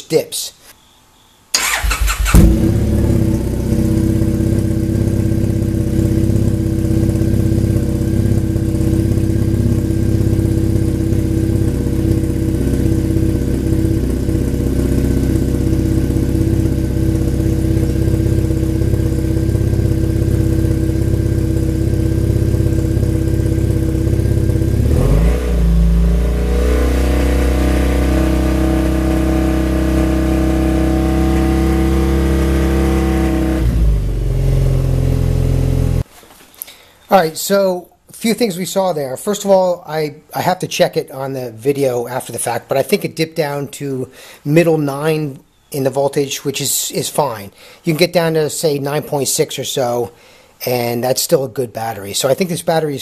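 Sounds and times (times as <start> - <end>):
motorcycle engine idling: 1.6 - 36.0.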